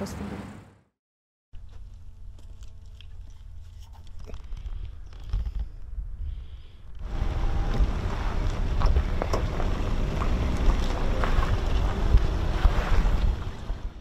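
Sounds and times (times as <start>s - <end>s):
wind buffeting microphone: 4.6s - 14.0s.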